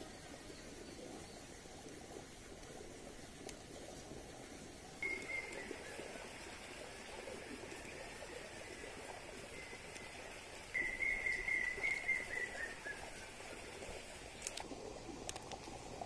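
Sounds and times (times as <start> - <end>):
animal whistling call: 5.0 - 6.0, 10.7 - 13.4.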